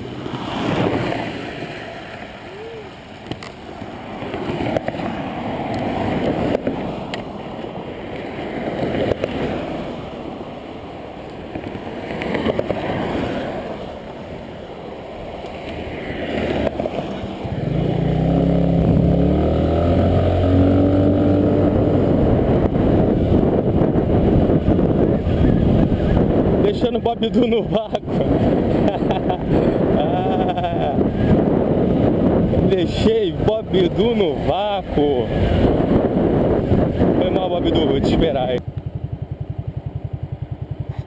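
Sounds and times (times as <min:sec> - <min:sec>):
highway traffic passing: 0:00.0 - 0:41.0
scooter engine pulling away: 0:16.3 - 0:24.2, 0:38.7 - 0:41.0.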